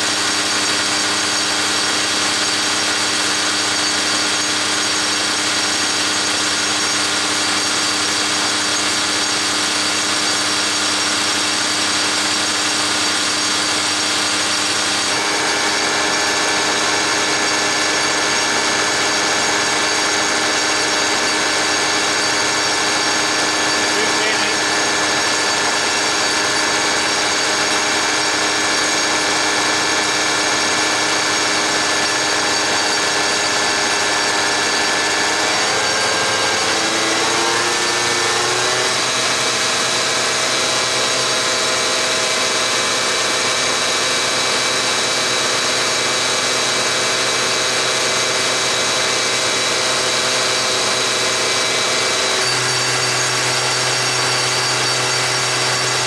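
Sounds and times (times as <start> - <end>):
injection pump test stand running: 0.0 - 56.0.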